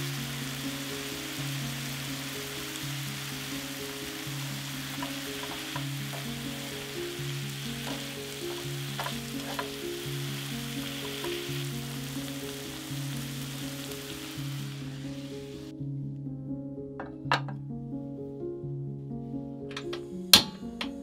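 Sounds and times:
food sizzling in oil: 0.0 - 15.7
background music: 0.0 - 21.0
utensil clicking in pan: 4.8 - 11.6, 19.7 - 21.0.

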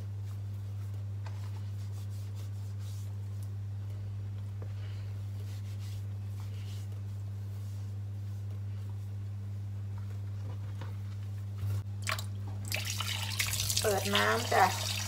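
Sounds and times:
steady low hum: 0.0 - 15.0
hands rubbing fish: 0.8 - 3.6, 5.3 - 8.0.

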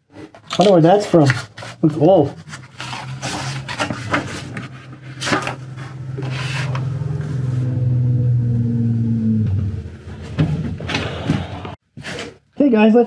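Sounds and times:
paper pages rustling: 0.2 - 6.8
steady low hum: 3.8 - 11.8.

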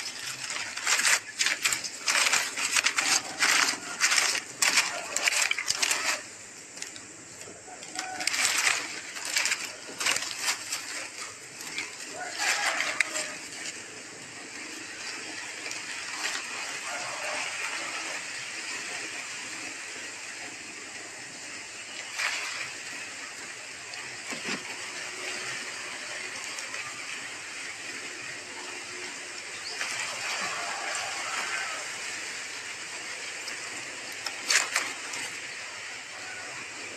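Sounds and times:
brief rustles: 0.0 - 7.0, 7.8 - 13.8
steady hiss: 0.0 - 36.9.

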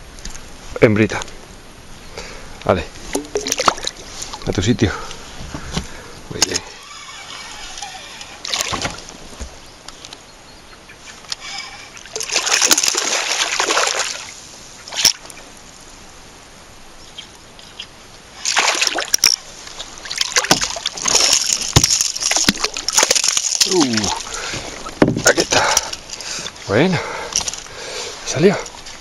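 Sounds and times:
fish splashing in water: 11.8 - 15.3, 18.4 - 24.9.

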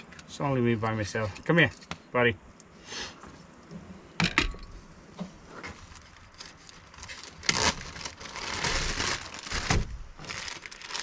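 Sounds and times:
plastic packaging crinkling: 5.7 - 11.0.

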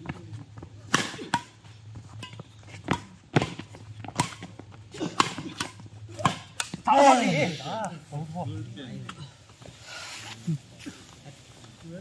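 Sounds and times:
rackets hitting shuttlecock: 0.8 - 6.9.

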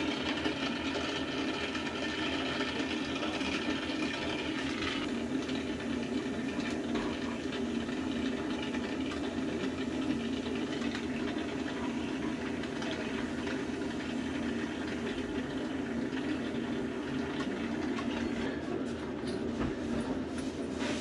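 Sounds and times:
torch flame hissing: 20.3 - 21.0.

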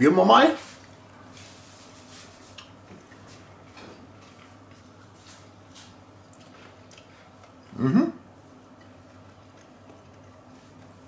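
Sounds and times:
low room hum: 0.0 - 11.0
person humming: 7.7 - 8.2.

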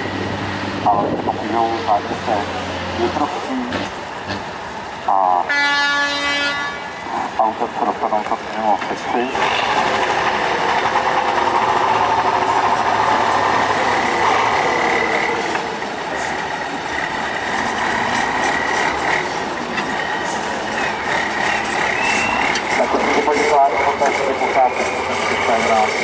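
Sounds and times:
truck diesel engine under load: 0.0 - 5.5, 6.8 - 26.0.

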